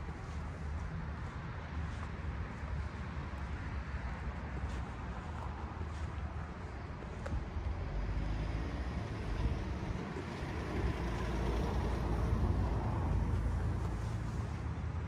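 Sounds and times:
low vehicle rumble: 0.0 - 15.0.

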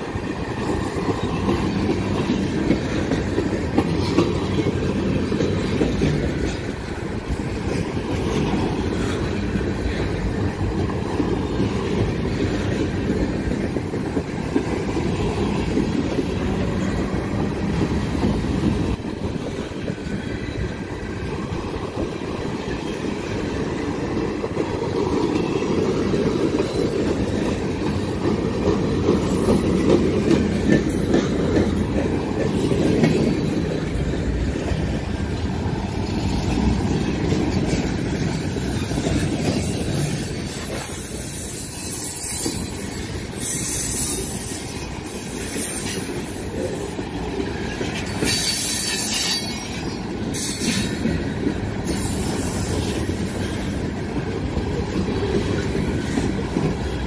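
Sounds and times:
train wheels rumbling on rail: 0.0 - 57.0
wheels squealing: 35.5 - 47.0.

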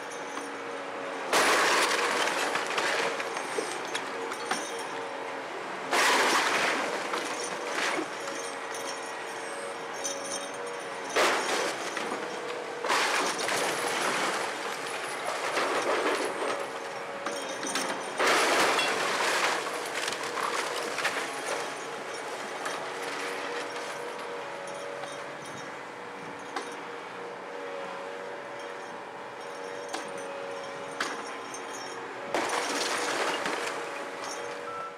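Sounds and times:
debris crashing down: 18.2 - 21.4.

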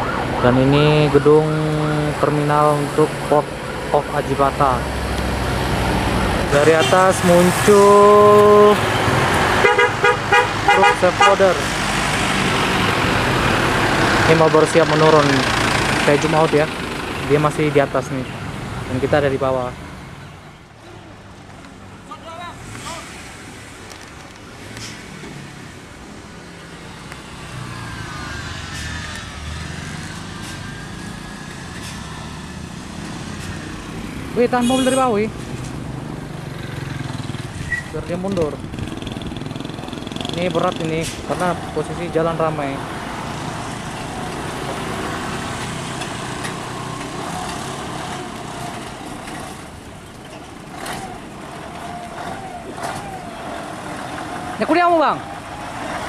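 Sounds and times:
truck diesel engine running: 5.5 - 17.8.

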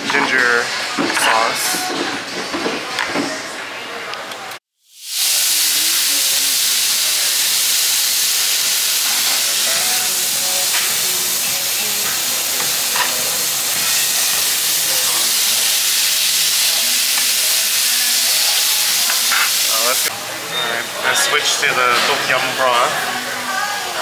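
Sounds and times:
meat sizzling on a grill: 4.8 - 24.0.

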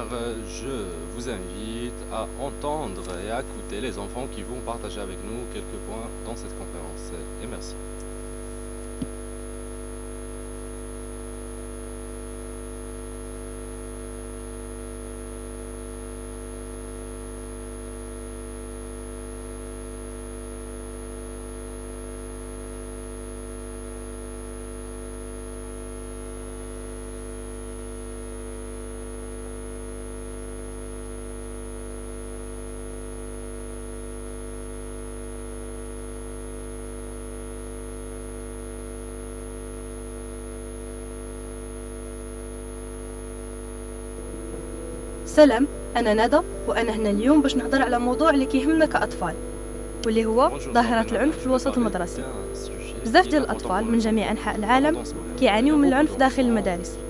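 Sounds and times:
electrical mains hum: 0.0 - 57.0.

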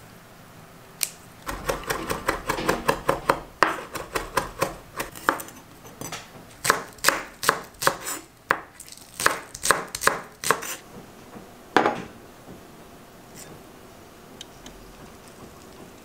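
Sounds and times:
knife chopping on wooden board: 1.5 - 12.6.

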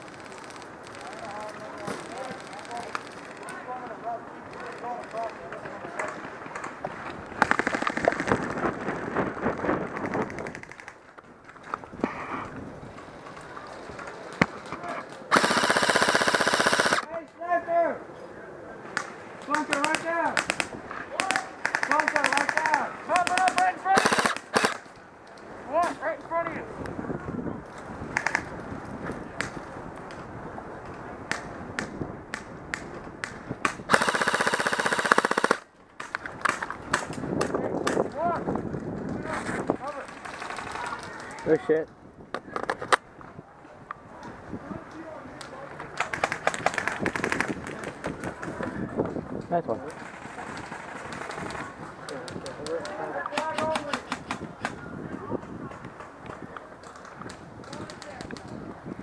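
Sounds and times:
airsoft guns firing bursts: 7.4 - 8.6, 15.3 - 17.1, 19.5 - 24.9, 33.7 - 35.7.

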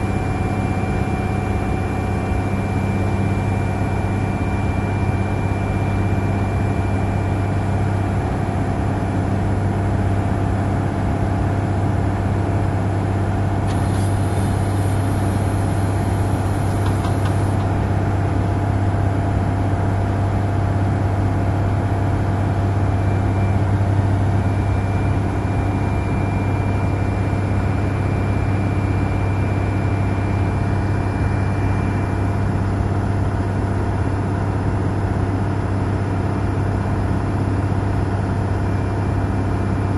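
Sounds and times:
diesel engine droning: 11.3 - 18.7.

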